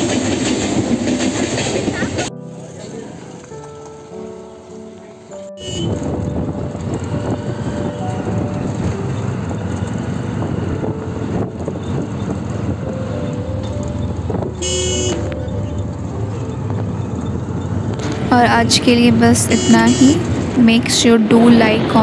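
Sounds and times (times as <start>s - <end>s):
vehicle engine and road noise: 0.0s - 22.0s
horn tooting: 5.5s - 9.0s, 13.8s - 16.6s, 18.3s - 20.7s.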